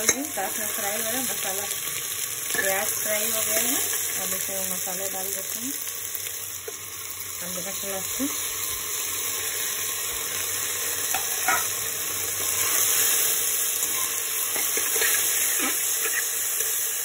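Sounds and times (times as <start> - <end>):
food sizzling in hot oil: 0.0 - 17.0
spatula scraping a pot: 13.8 - 16.4.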